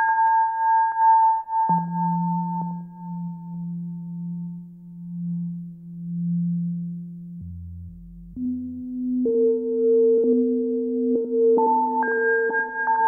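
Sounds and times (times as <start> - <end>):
low electronic drone tone: 5.1 - 11.8
deeper electronic tone: 7.4 - 9.1.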